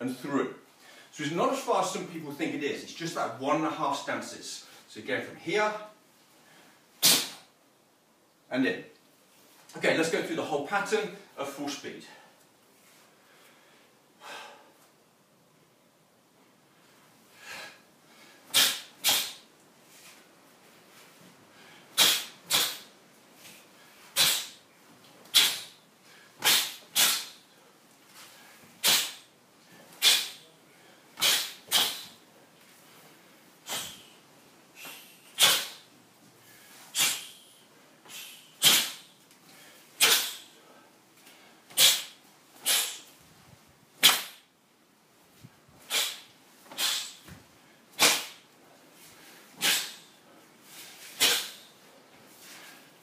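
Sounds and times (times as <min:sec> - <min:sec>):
hissing breaths through teeth: 0:18.4 - 0:19.5, 0:21.7 - 0:24.6, 0:26.4 - 0:27.5, 0:31.2 - 0:32.2, 0:33.1 - 0:34.2, 0:41.7 - 0:43.2, 0:45.4 - 0:47.4, 0:49.0 - 0:51.8.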